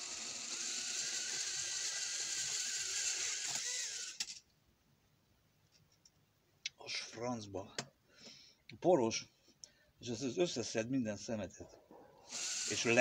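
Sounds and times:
toy drone motors whirring: 0.0 - 4.4, 12.3 - 13.0.

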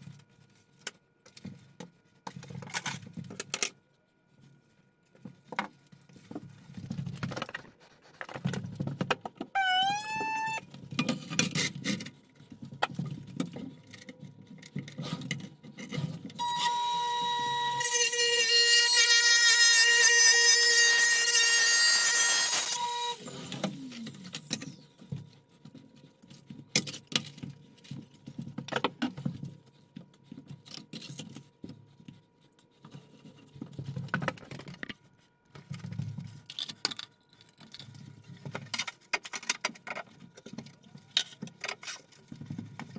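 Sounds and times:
tile saw cutting: 16.4 - 24.4.

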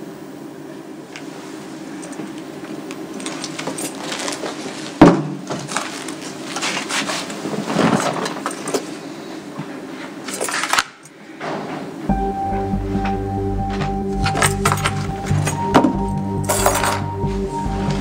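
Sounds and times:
rustling: 3.2 - 9.0.

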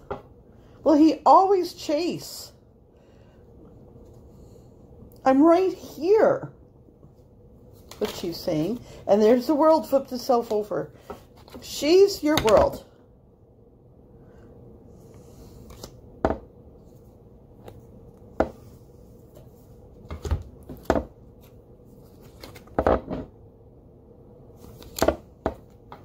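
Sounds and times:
cards being shuffled: 7.7 - 8.8, 10.4 - 11.6, 15.4 - 16.0, 20.6 - 22.8, 24.6 - 26.0.

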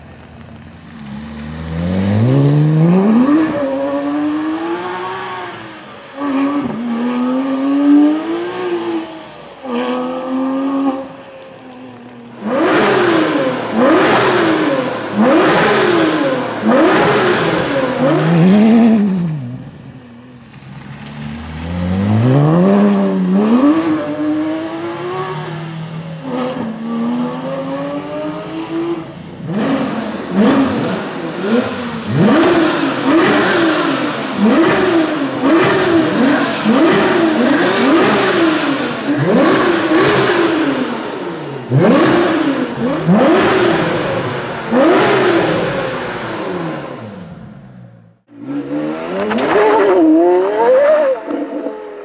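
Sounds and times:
sports car engine accelerating: 0.2 - 52.0.

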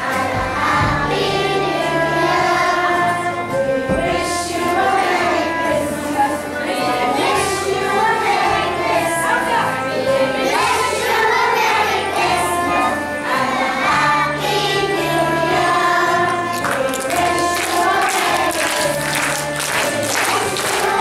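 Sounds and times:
children singing: 0.0 - 21.0
backing music with bass line: 10.6 - 21.0.

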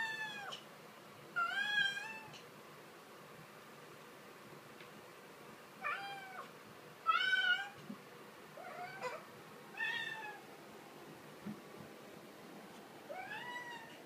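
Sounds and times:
kitten meowing: 13.1 - 14.0.

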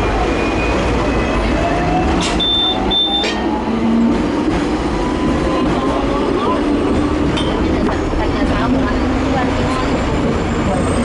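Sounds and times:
tram wheels rumbling on rails: 0.0 - 11.0
short high beeps: 2.4 - 3.4.

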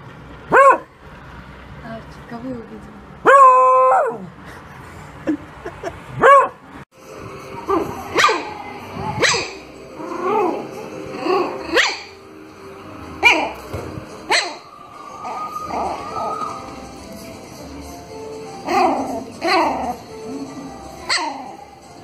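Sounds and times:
dog barking: 0.5 - 0.9, 3.2 - 4.2, 6.2 - 6.6, 8.2 - 8.5, 9.2 - 9.6, 11.7 - 12.2, 13.2 - 13.6, 14.3 - 14.7, 21.1 - 21.6
puppy yapping: 0.5 - 0.9, 3.2 - 4.2, 8.1 - 8.6, 9.2 - 10.6, 11.2 - 12.2, 13.2 - 13.6, 14.3 - 16.7, 21.0 - 21.7.

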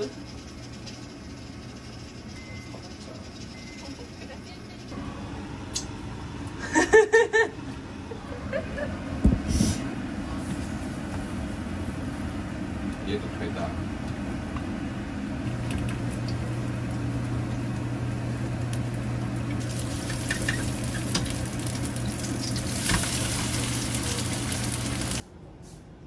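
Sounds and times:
steady low hum: 0.0 - 26.0
batter sizzling in a frying pan: 16.0 - 25.2.

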